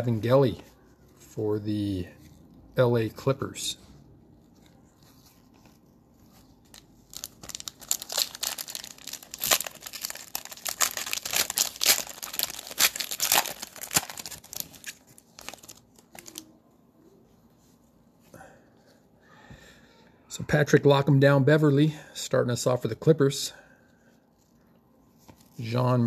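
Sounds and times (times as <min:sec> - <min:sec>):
cellophane wrapper crinkling: 0:04.4 - 0:16.6.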